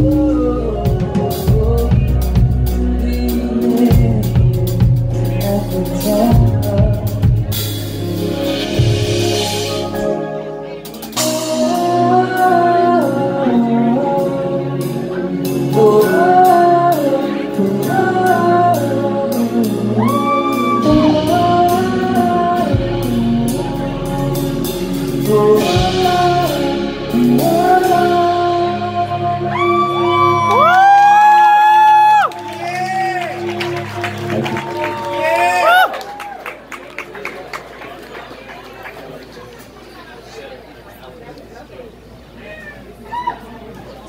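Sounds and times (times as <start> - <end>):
man singing: 0.0 - 7.7, 11.2 - 30.9
live band music: 0.0 - 36.3.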